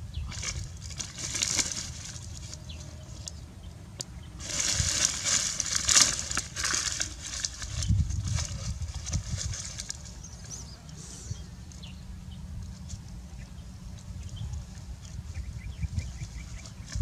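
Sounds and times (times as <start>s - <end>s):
dry leaves crushed by hand: 0.2s - 3.4s, 4.0s - 10.6s.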